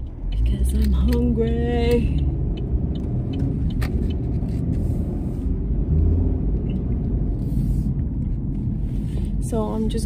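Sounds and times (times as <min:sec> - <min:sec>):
car engine and tyre rumble: 0:00.0 - 0:10.0.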